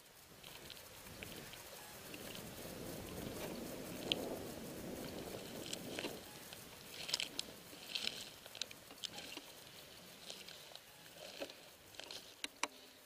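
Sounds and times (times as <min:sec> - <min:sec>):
footsteps through dry grass: 0:00.0 - 0:13.0.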